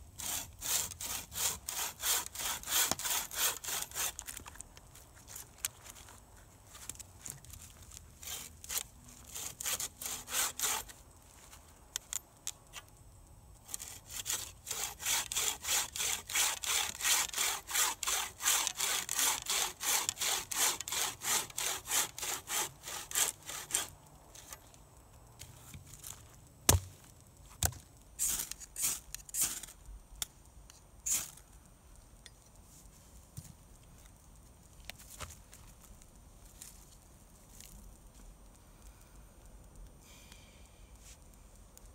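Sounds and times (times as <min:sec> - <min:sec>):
saw blade rasping through log: 0:00.2 - 0:04.2, 0:08.2 - 0:11.0, 0:13.7 - 0:23.9.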